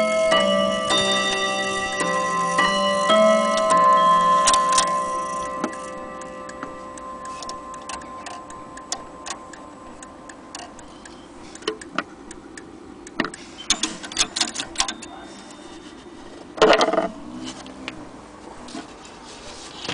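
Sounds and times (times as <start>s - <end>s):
clock chime gong tones: 0.0s - 10.0s
clock ticking: 0.0s - 15.6s.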